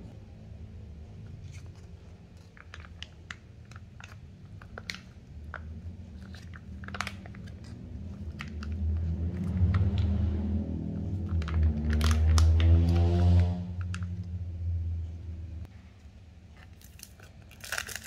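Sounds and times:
low steady hum: 0.0s - 18.0s
foil pouch crinkling: 16.6s - 18.0s.

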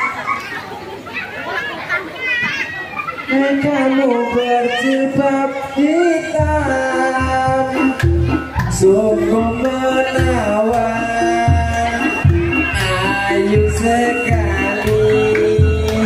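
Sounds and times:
person singing: 3.4s - 16.0s
low drum beats: 6.4s - 16.0s.

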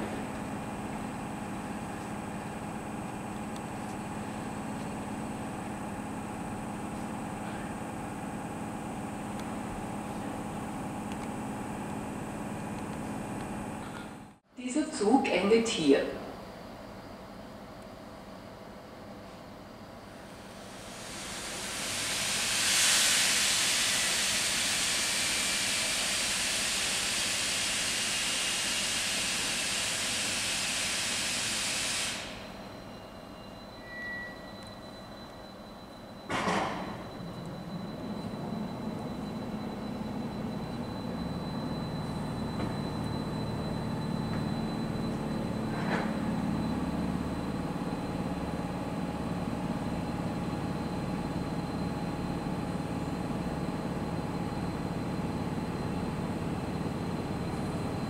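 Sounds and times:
electric locomotive hum: 0.0s - 58.0s
loud steady hiss: 20.2s - 32.7s.

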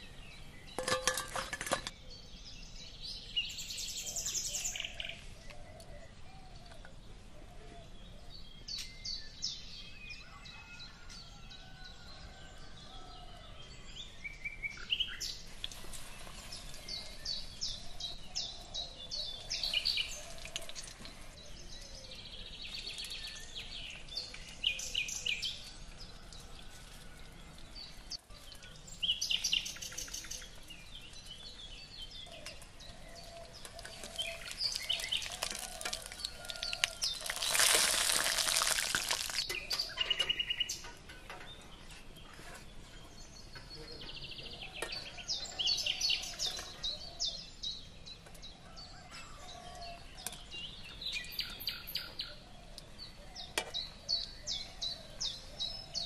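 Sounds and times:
small birds chirping: 13.4s - 56.0s.

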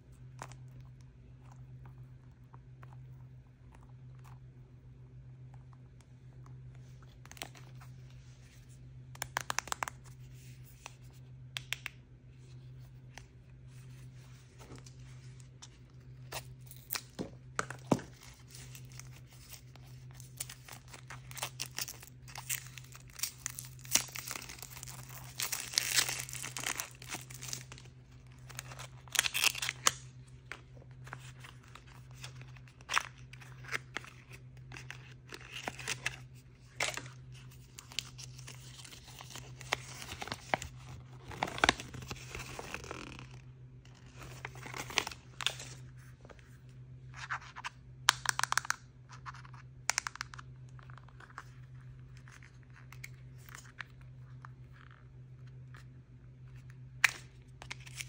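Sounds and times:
packaging tearing and crinkling: 16.3s - 30.1s, 31.1s - 43.4s, 44.0s - 45.8s, 57.0s - 58.0s.

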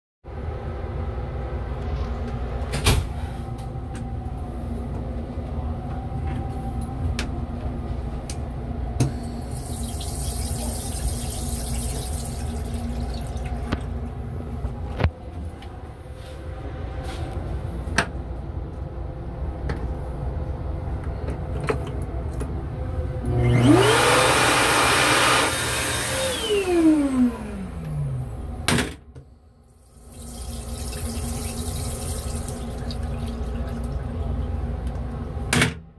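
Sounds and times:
railcar low rumble: 0.3s - 9.5s, 13.9s - 23.3s
chemical toilet flushing: 9.0s - 14.0s, 29.9s - 35.3s
motor whine: 23.2s - 28.5s.

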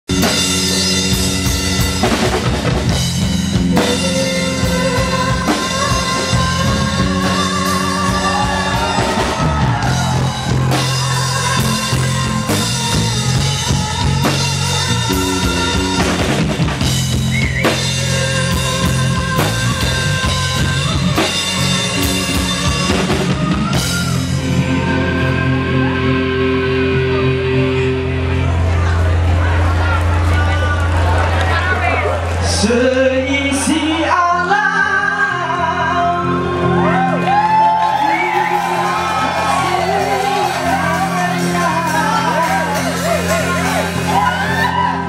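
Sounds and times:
bass guitar: 0.0s - 45.0s
drum kit driving beat: 0.1s - 25.0s, 37.2s - 45.0s
electric guitar: 0.1s - 45.0s.

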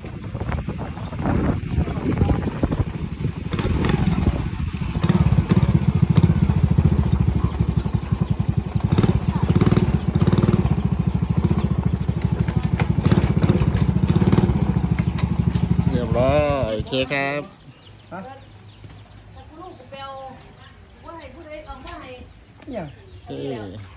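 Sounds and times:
knocks and rattles: 0.0s - 16.6s
motorcycle engine running: 0.0s - 21.0s.

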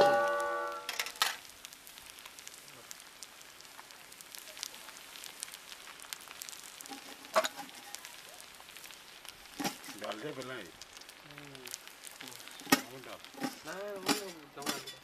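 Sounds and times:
rice sizzling and crackling: 0.0s - 15.0s
spoon clinking on metal box: 12.7s - 15.0s.

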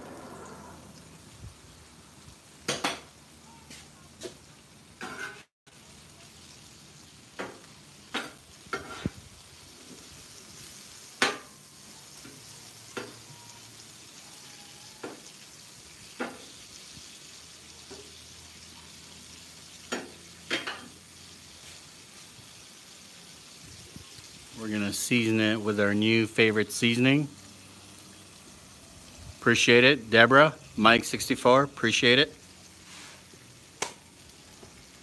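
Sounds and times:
shrimp sizzling on griddle: 0.0s - 35.0s
spatula scraping griddle: 5.0s - 5.5s, 7.4s - 9.2s, 19.9s - 22.3s, 32.8s - 33.4s.

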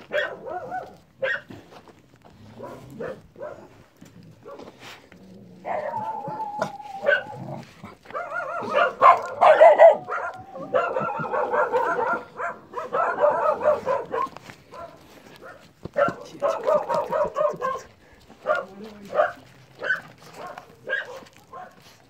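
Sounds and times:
dog whining: 5.6s - 14.3s.

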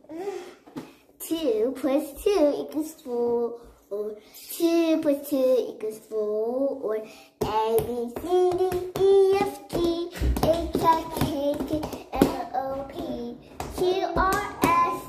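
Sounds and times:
girls singing in high voices: 7.4s - 15.0s
hands smacking: 7.5s - 15.0s.

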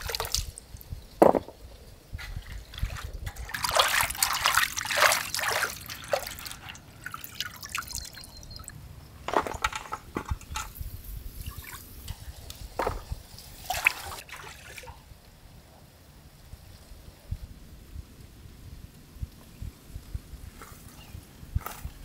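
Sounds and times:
water splashing and dripping: 0.0s - 1.0s, 2.1s - 15.1s.

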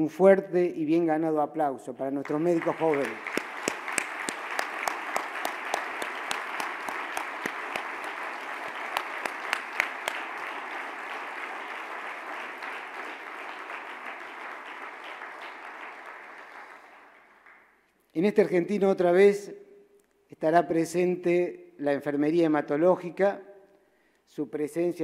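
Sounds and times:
large audience applauding: 2.2s - 17.8s
sharp claps close by: 2.2s - 17.8s.

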